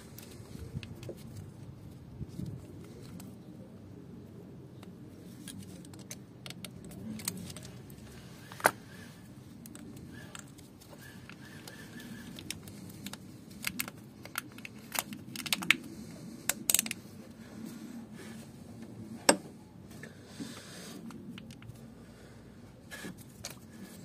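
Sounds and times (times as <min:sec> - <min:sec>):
hose connectors clicking: 0:09.6 - 0:17.0.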